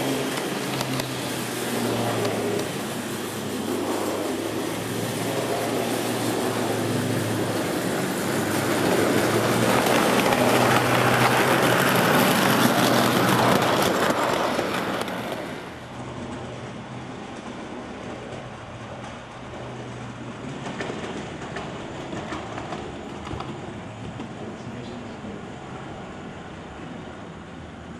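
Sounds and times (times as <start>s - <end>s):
wheels rolling on rails: 0.0s - 27.4s
model tram motor hum: 0.0s - 27.9s.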